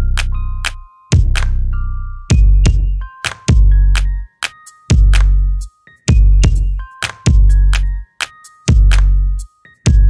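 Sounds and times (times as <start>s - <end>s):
drum machine hits: 2.3s - 3.7s, 6.1s - 7.6s.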